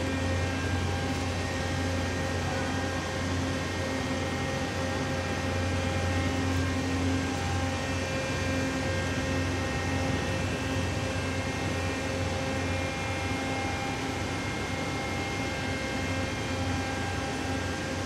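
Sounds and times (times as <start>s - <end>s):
crane machinery droning and whining: 0.0s - 18.0s.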